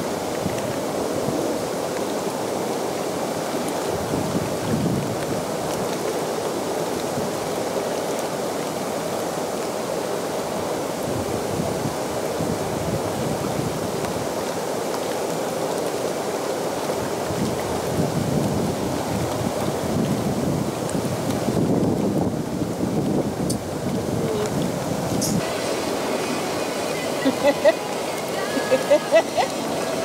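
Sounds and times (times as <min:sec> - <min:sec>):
hot tub jets churning water: 0:00.0 - 0:30.0.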